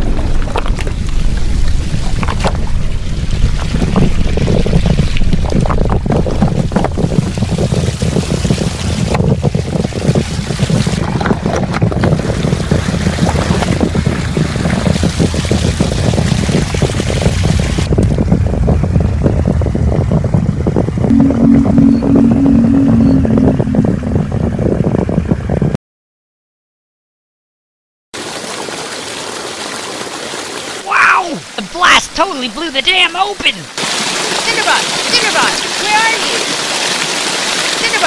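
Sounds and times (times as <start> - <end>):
wind buffeting microphone: 0.0 - 25.8
stream pouring over rocks: 28.2 - 38.0.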